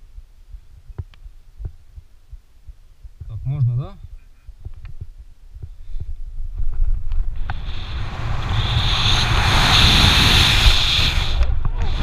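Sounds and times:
wind rushing on microphone: 0:03.2 - 0:12.0.

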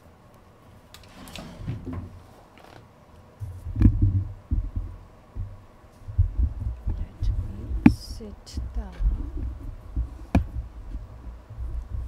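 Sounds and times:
thumps on microphone: 0:03.4 - 0:12.0.

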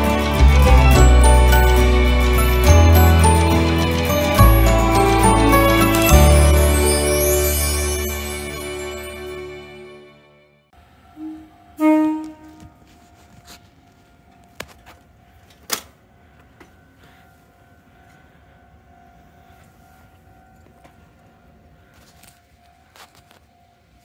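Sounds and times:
electric train horn: 0:11.1 - 0:13.0.

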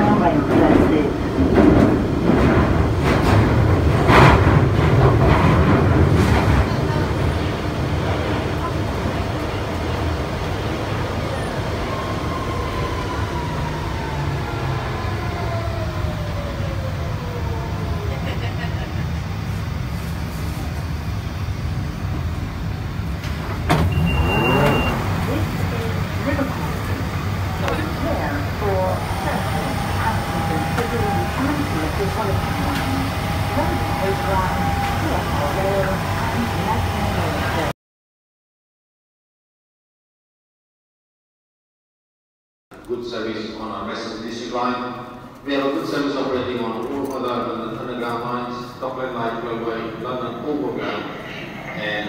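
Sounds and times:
train wheels rumbling on rails: 0:00.0 - 0:37.7
high door warning beep: 0:23.7 - 0:25.4.

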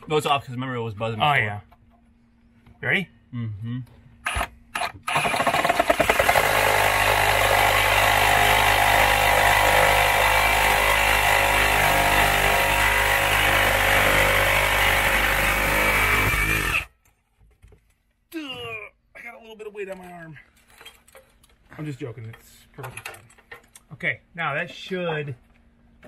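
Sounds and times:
reciprocating saw cutting wood: 0:04.3 - 0:16.9.

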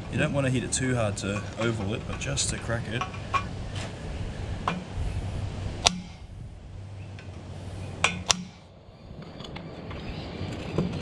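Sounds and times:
hammer striking metal blade: 0:05.8 - 0:06.2, 0:08.0 - 0:08.7.

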